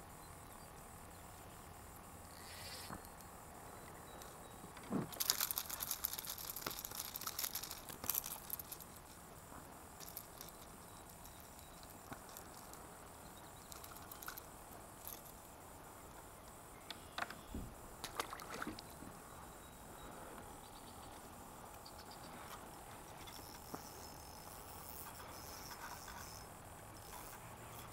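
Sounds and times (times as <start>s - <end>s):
fishing tackle clicking and rattling: 5.1s - 9.1s, 10.0s - 12.8s, 13.6s - 15.4s.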